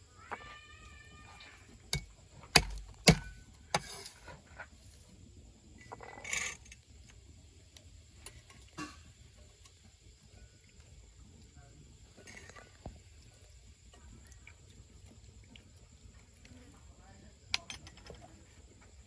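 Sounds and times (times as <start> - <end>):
cleaver chopping on wooden block: 2.6 - 3.3.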